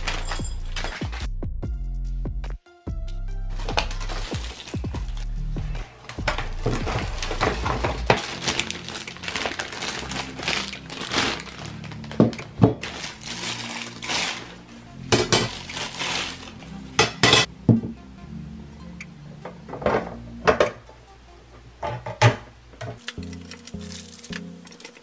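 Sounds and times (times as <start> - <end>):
metal parts clanking: 0.0 - 1.2
background music: 0.0 - 25.0
plastic packaging crinkling: 3.5 - 5.3, 6.4 - 16.8, 23.0 - 25.0.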